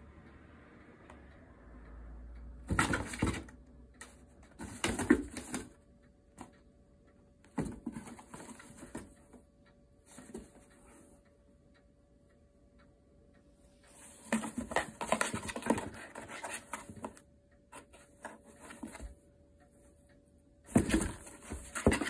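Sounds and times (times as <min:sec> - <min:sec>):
cardboard box rustling and scraping: 0:14.3 - 0:17.2, 0:20.7 - 0:22.0.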